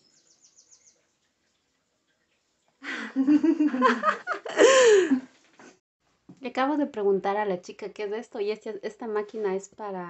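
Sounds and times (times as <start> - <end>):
woman laughing and vocalising: 2.9 - 5.2.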